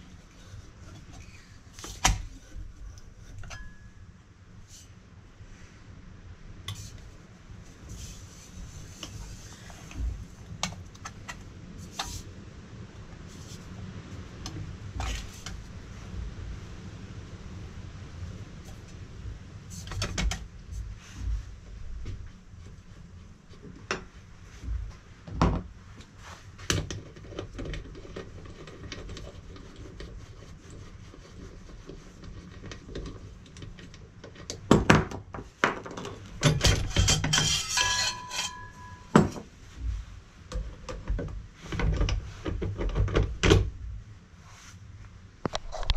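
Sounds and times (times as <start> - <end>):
tools and steel clanking: 3.3 - 4.0, 36.3 - 39.5
sheet metal ringing: 37.0 - 39.3.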